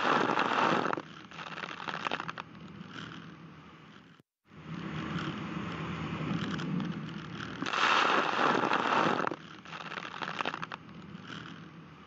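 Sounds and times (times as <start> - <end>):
boat engine and hull drone: 0.4 - 12.0
crackling water drops: 6.9 - 11.2.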